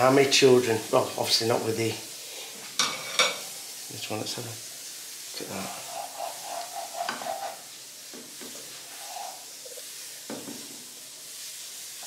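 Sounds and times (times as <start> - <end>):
omelette sizzling in a frying pan: 0.0 - 12.0
plastic spatula scraping: 5.6 - 7.7.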